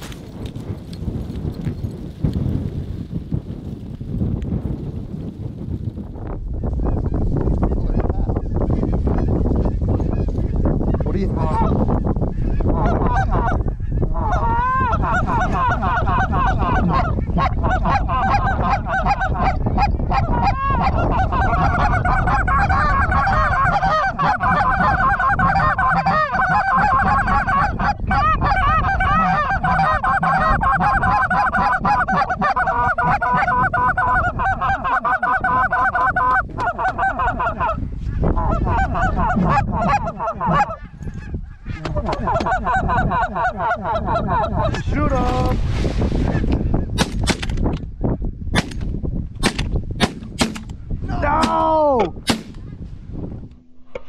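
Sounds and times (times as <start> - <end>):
geese honking: 12.4 - 37.8, 38.4 - 44.8.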